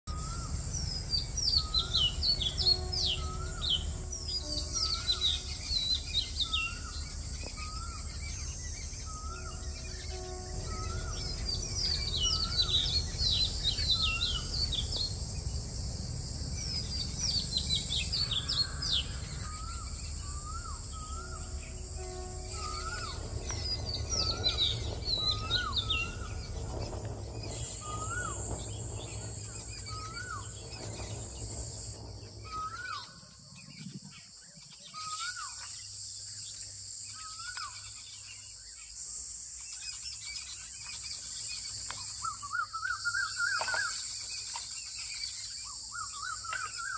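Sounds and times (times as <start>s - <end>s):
birds chirping: 0.0s - 46.9s
low background rumble: 0.1s - 35.0s
high insect drone: 0.1s - 46.9s.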